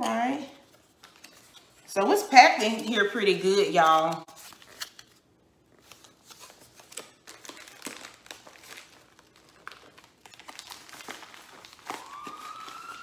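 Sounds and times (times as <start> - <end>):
cardboard and plastic crinkling: 3.8 - 13.0.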